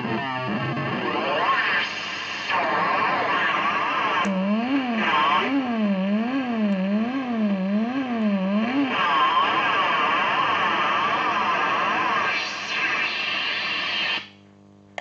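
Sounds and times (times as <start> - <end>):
harsh crackling distorted noise: 0.0 - 15.0
warbling buzzy feedback drone: 4.3 - 9.6.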